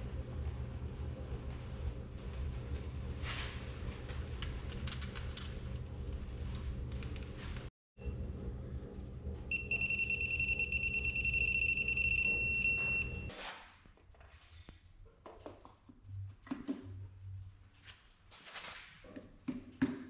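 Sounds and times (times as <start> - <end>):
low hum: 0.0 - 13.3
high electronic beep: 9.5 - 13.3.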